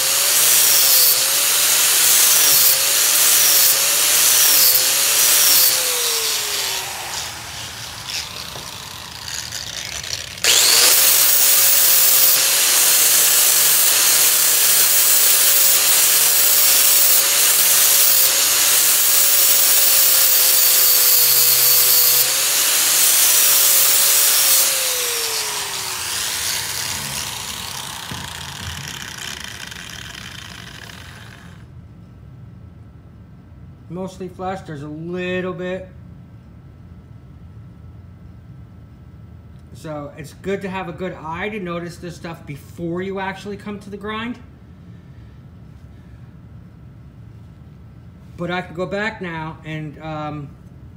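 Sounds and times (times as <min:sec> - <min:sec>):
angle grinder grinding steel: 0:00.0 - 0:31.7.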